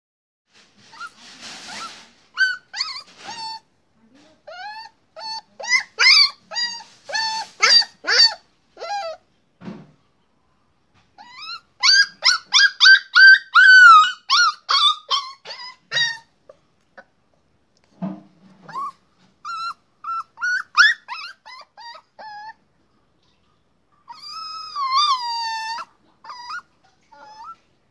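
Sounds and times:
puppy yipping and whining: 0.8s - 3.7s, 4.4s - 9.2s, 11.2s - 16.4s, 18.6s - 22.6s, 24.0s - 27.8s.

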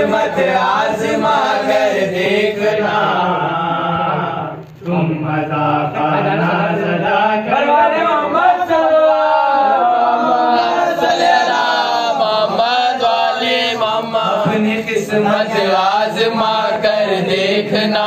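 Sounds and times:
man chanting into microphone: 2.0s - 9.6s, 12.1s - 18.0s.

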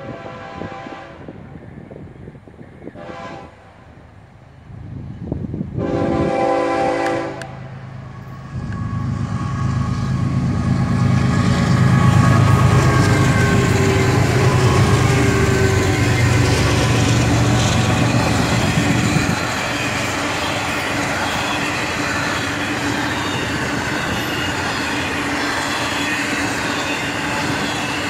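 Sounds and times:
locomotive air horn blasts: 0.0s - 1.4s, 3.0s - 4.0s, 5.8s - 7.7s
locomotive engine passing: 6.2s - 28.0s.

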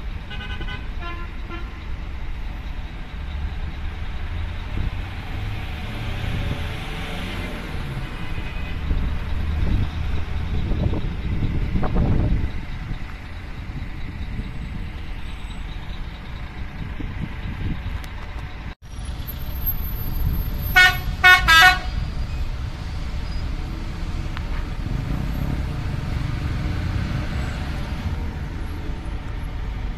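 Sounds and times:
traffic and idling engines: 0.0s - 29.9s
vehicle horn toots: 0.3s - 1.7s, 20.7s - 22.0s.

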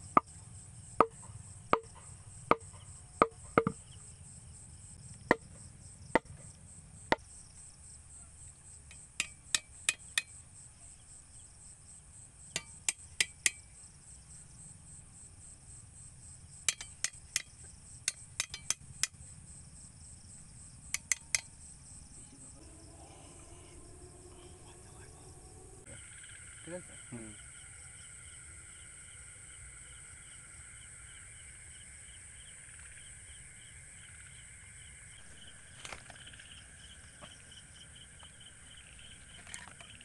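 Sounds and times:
crickets chirring: 0.0s - 40.0s
tool striking wooden stakes: 1.0s - 3.9s, 5.2s - 5.6s, 6.2s - 6.5s, 8.9s - 10.4s, 12.5s - 13.7s, 16.6s - 19.2s, 20.9s - 21.5s.

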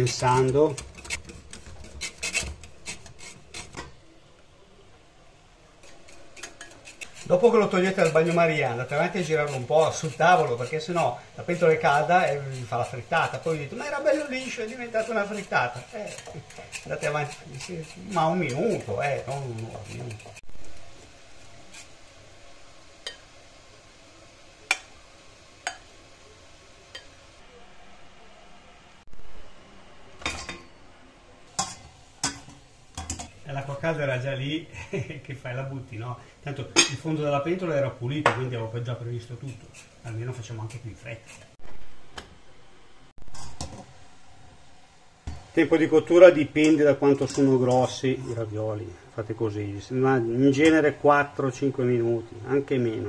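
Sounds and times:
whisk scraping a glass bowl: 0.0s - 3.8s, 5.8s - 20.4s, 38.8s - 41.6s.

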